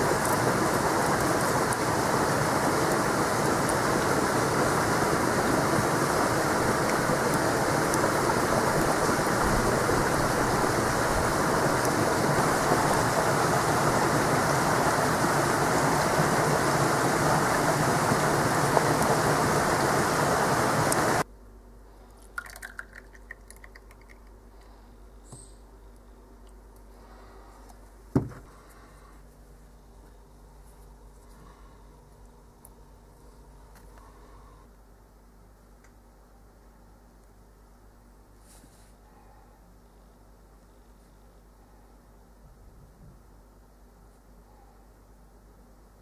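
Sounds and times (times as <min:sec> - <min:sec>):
pot steaming hiss: 0:00.0 - 0:21.3.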